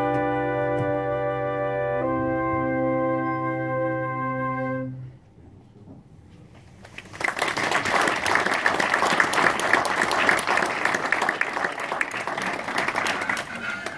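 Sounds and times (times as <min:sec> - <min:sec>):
audience applause: 0:07.0 - 0:13.9.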